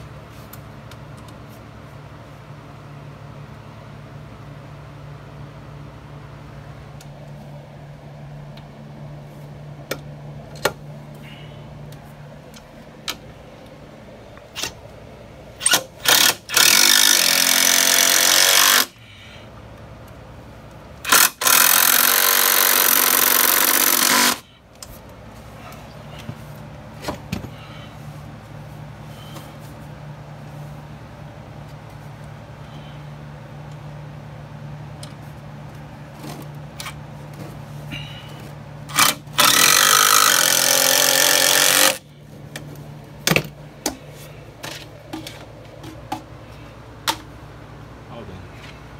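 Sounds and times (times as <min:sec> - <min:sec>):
cordless drill running: 0:16.0 - 0:19.0, 0:21.0 - 0:24.5, 0:38.9 - 0:42.0
drill trigger blips: 0:21.0 - 0:24.4.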